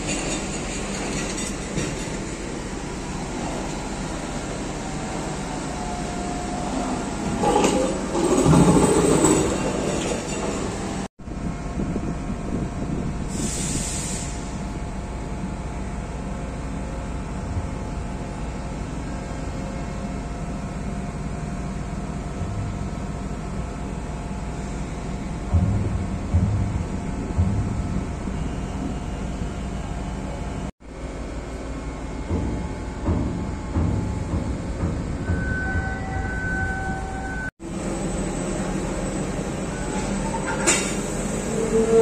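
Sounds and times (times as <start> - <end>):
electric locomotive on rails: 0.0 - 42.0
brief hiss: 13.3 - 14.6
steady rumbling hum: 14.8 - 29.9.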